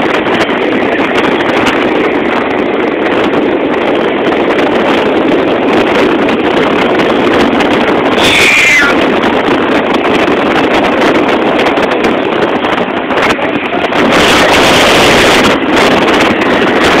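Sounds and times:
wind rushing over microphone: 0.0s - 17.0s
short falling high tone: 8.2s - 9.0s.

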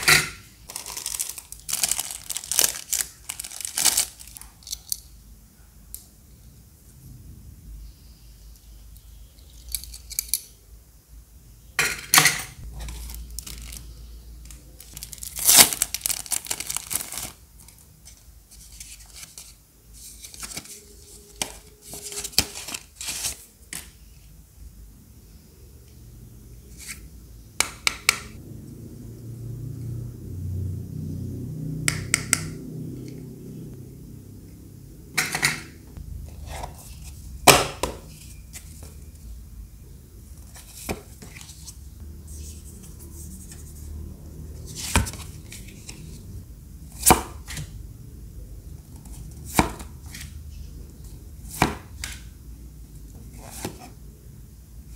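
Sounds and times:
packaging crinkling and rustling: 0.7s - 4.5s, 12.7s - 13.9s, 14.5s - 19.5s, 20.2s - 23.9s.

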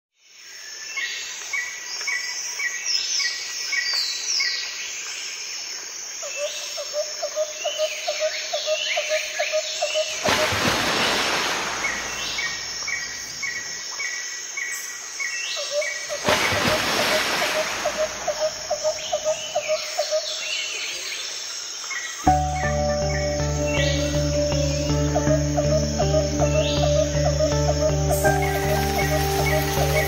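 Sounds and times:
birds chirping: 9.8s - 13.8s, 15.6s - 21.4s, 22.0s - 30.0s.

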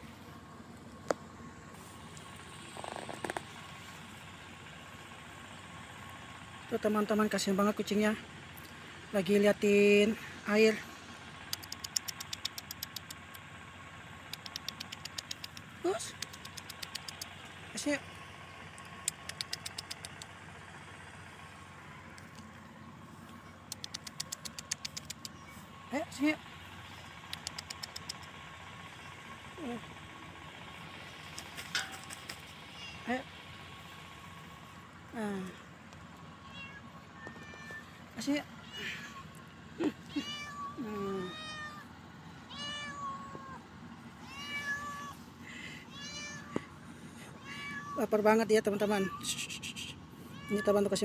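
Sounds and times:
distant traffic hum: 0.0s - 51.0s
person clicking to call cat: 11.5s - 13.4s, 14.3s - 17.6s, 18.8s - 20.4s, 23.6s - 25.5s, 27.3s - 28.4s, 31.3s - 32.5s
cat meowing: 32.7s - 33.1s, 36.4s - 38.0s, 40.1s - 41.8s, 42.5s - 43.6s, 44.2s - 45.2s, 45.9s - 46.7s, 47.4s - 48.0s, 50.3s - 50.8s.

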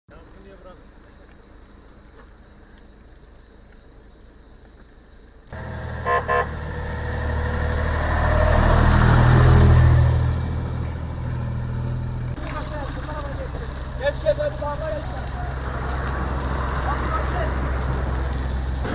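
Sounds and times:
fire engine horn blasts: 5.6s - 7.5s
fire engine passing by: 5.6s - 18.9s.

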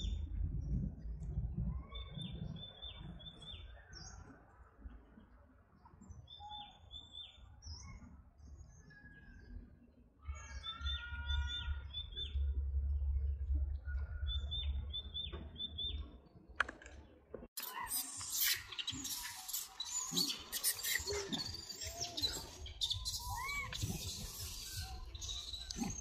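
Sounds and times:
steady low rumble: 0.0s - 3.3s, 11.8s - 16.2s
birds chirping: 1.6s - 26.0s.

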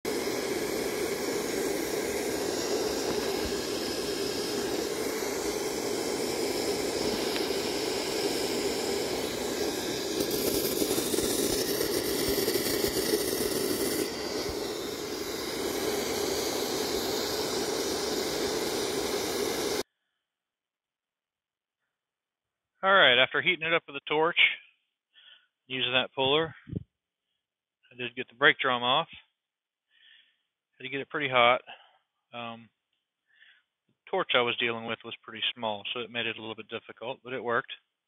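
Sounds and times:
gas torch flame hissing: 0.0s - 19.8s.

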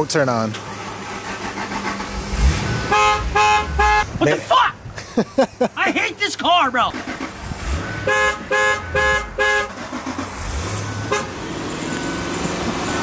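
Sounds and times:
vehicle horn honking: 2.4s - 4.2s, 7.6s - 9.8s, 11.0s - 11.4s.

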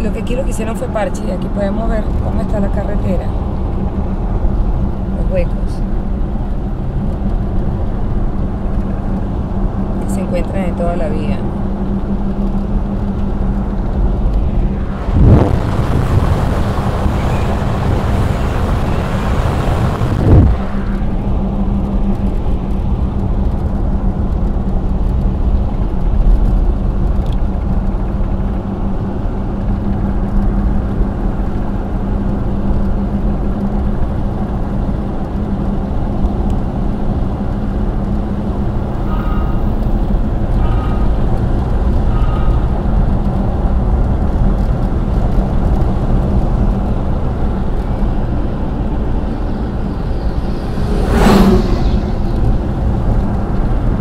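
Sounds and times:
car engine drone: 0.0s - 54.0s
tyre noise on rough road: 11.1s - 54.0s
rushing noise: 13.5s - 23.0s, 38.4s - 44.0s, 45.9s - 54.0s.

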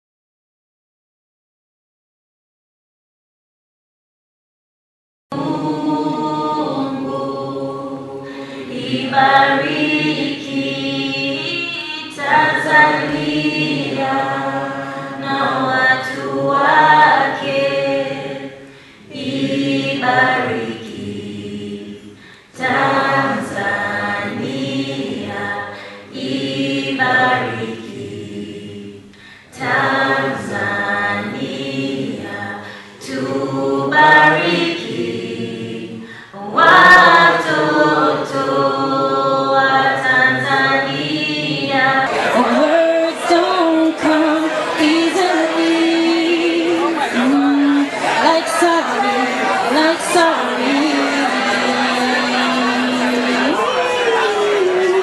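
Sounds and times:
woman singing unaccompanied: 9.1s - 14.1s, 39.3s - 53.6s.

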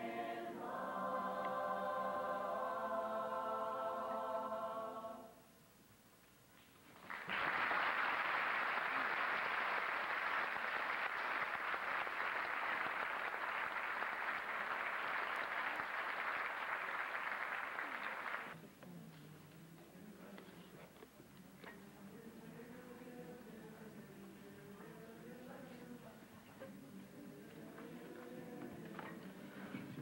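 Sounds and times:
chorus singing a chord: 0.0s - 5.5s
audience applause: 7.0s - 18.6s.

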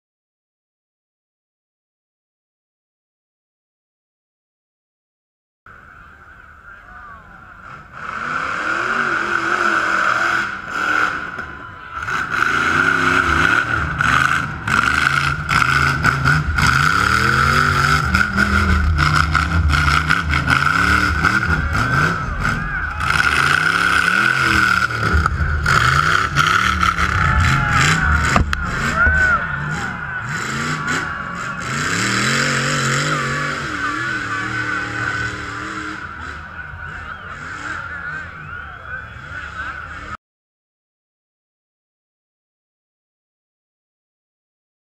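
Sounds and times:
buggy engine revving: 6.8s - 40.2s.

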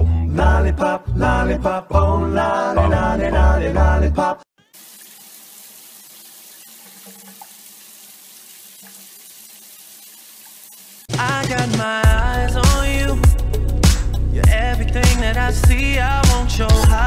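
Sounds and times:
music: 0.0s - 4.4s, 11.1s - 17.0s
shower water running into bathtub: 4.6s - 11.2s.

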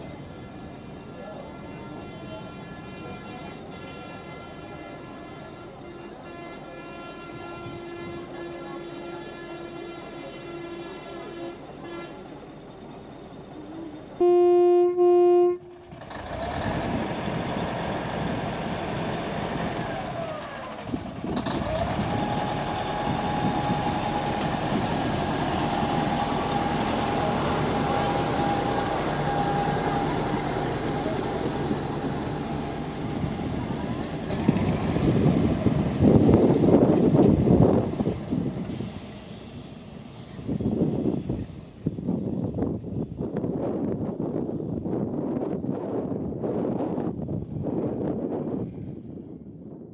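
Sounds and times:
train horn blasts: 1.5s - 12.3s, 14.2s - 15.9s
diesel train engine running: 5.4s - 49.1s.

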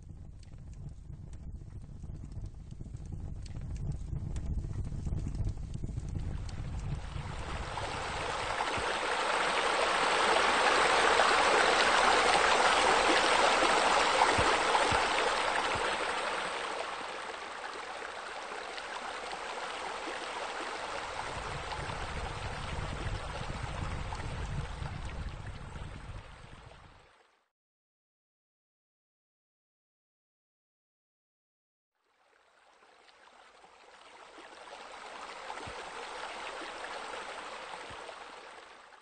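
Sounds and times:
low rumble: 0.0s - 8.6s, 21.2s - 26.6s
running water rushing: 6.1s - 27.3s, 32.2s - 39.0s.

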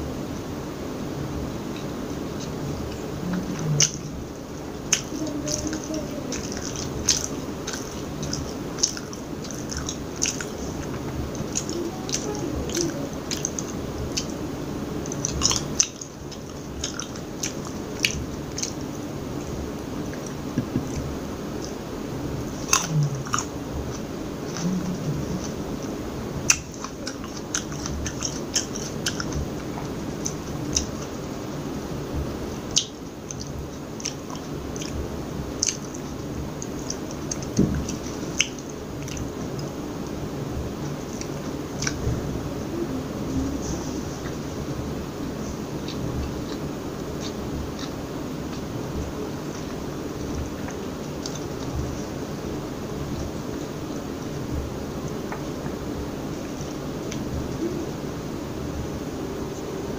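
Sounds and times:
wet mouth clicks: 3.3s - 4.1s, 22.6s - 25.6s, 35.6s - 36.0s, 36.6s - 39.7s, 45.8s - 48.7s
chewing and biting fruit: 22.4s - 31.4s.

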